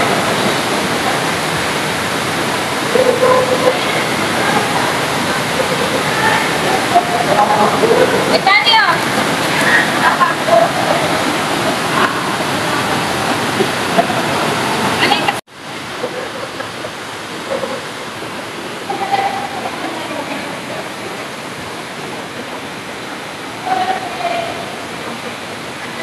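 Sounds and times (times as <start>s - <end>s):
faint voices: 0.0s - 26.0s
rushing water: 0.0s - 26.0s.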